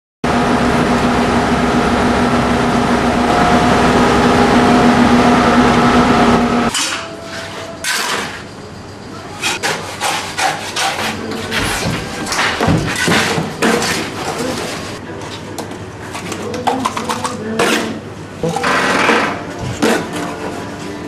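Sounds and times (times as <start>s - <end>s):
concrete mixer running: 0.2s - 8.5s, 10.8s - 15.0s
sharp knocks and clatters: 11.5s - 14.5s.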